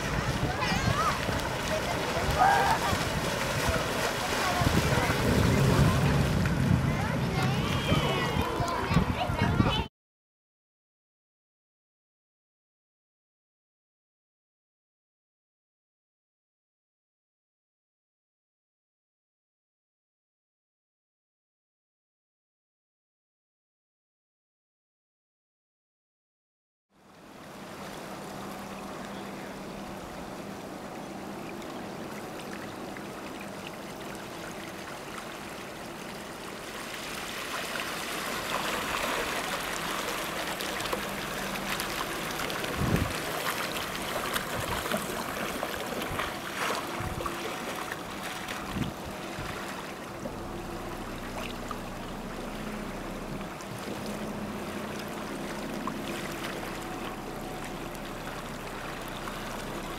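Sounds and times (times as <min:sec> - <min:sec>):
water washing around hull: 0:00.0 - 0:09.9, 0:27.0 - 0:59.9.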